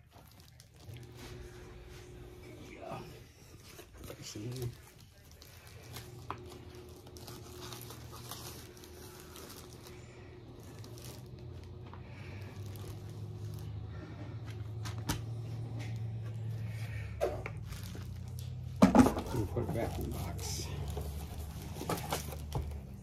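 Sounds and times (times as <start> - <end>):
cloth and paper rustling: 0.0 - 23.0
low hum: 4.7 - 23.0.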